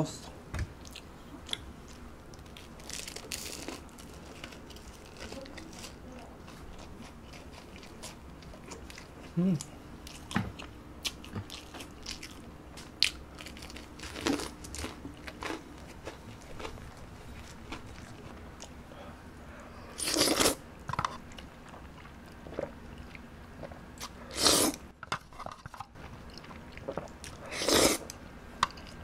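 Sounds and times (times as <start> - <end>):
crunching bites and chewing: 0.8 - 5.4.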